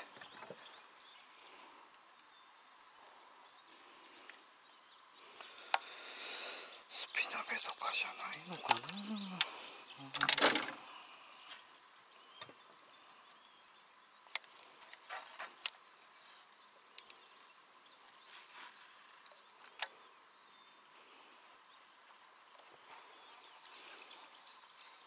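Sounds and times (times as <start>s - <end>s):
faint bird or insect chirps: 0.0s - 25.0s.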